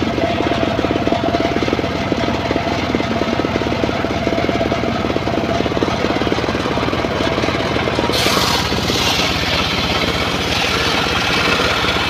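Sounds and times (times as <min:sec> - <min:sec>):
sawmill engine chugging: 0:00.0 - 0:12.0
steady saw tone: 0:08.1 - 0:12.0.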